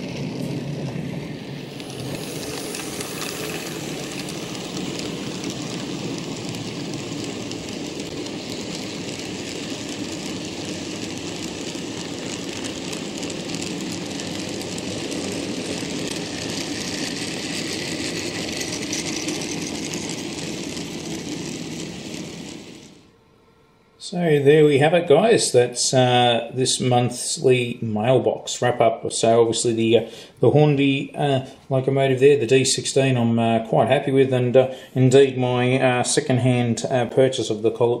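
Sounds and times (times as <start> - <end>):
model train wheels clattering on rail: 0.0 - 23.0.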